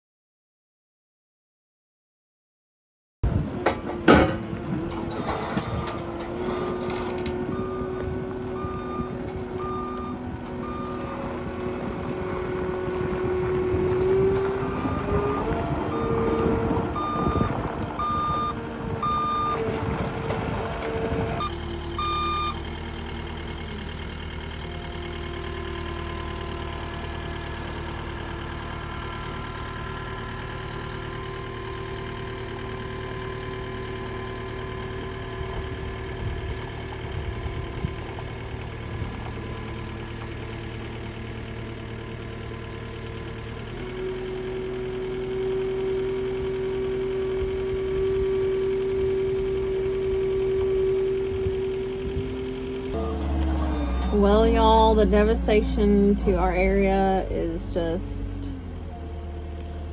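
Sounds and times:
engine running: 3.2s - 59.9s
reversing alarm beeping: 5.5s - 11.4s, 14.0s - 19.7s, 21.3s - 23.7s, 45.4s - 56.6s.

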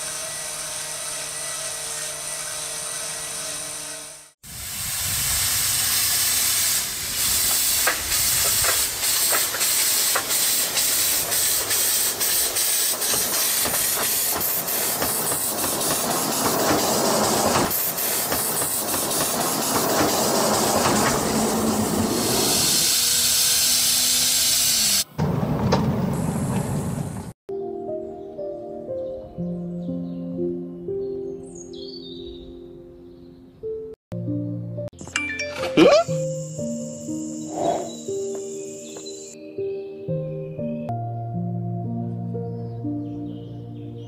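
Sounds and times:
toy locomotive hissing and clicking: 5.0s - 25.1s.

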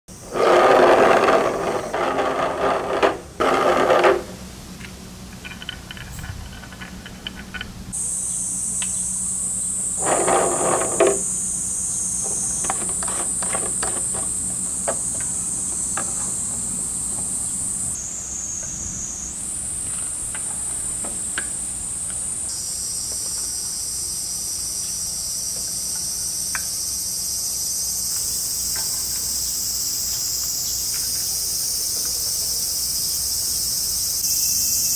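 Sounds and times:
high-pitched insect chorus: 0.1s - 34.9s
rattling and clattering: 5.3s - 7.8s.

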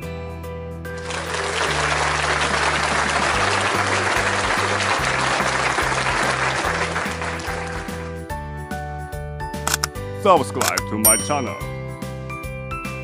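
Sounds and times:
many hands clapping: 0.9s - 8.2s.

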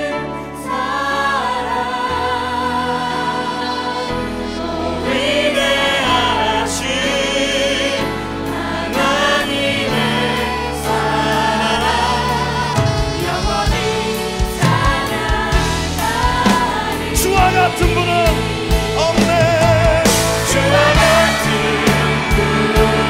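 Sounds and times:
voices singing long notes: 0.0s - 23.0s
worship band playing: 0.0s - 23.0s
electric bass low notes: 12.0s - 23.0s.

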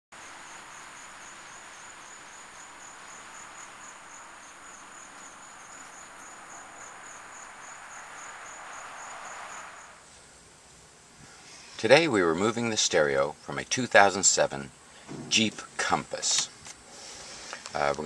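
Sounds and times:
steady hiss: 0.1s - 18.0s
high thin insect-like chirp: 0.2s - 10.1s.

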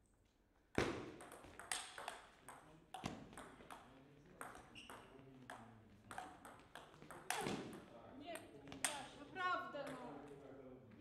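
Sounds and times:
ping pong ball bouncing on table: 0.8s - 9.1s, 9.8s - 10.3s
ping pong ball clicking off rackets: 1.2s - 9.1s.

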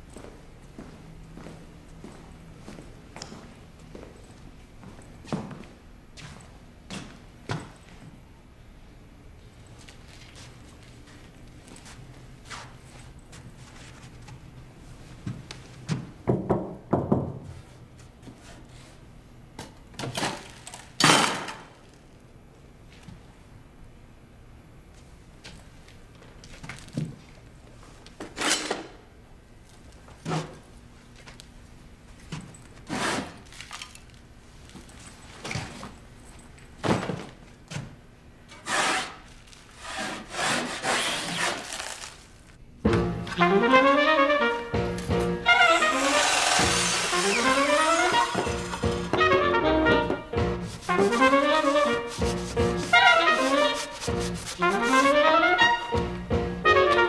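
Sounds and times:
hand saw strokes on wood: 38.6s - 41.7s, 50.6s - 55.2s.

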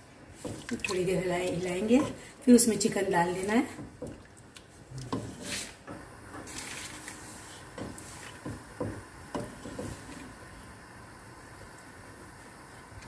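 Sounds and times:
spatula scraping and knocking pot: 7.6s - 10.2s.

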